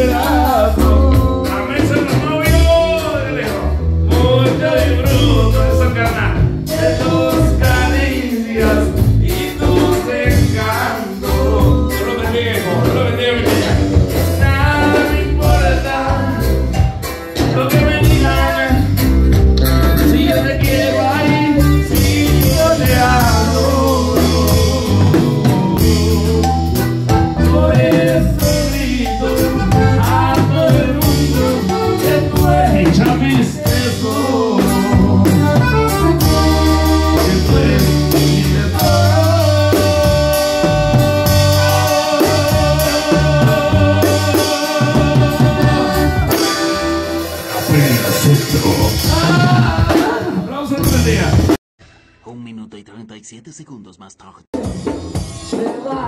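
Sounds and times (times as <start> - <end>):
accordion band music: 0.0 - 51.6.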